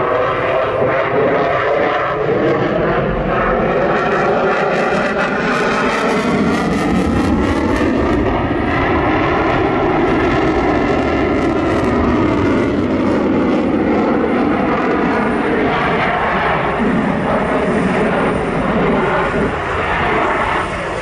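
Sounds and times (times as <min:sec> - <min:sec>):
jet roar: 0:00.0 - 0:21.0
jet whine falling in pitch: 0:00.0 - 0:21.0.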